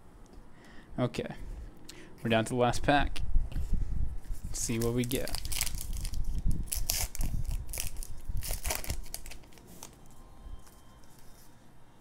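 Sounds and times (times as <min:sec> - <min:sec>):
wrapper crinkling and tearing: 0:04.6 - 0:11.2.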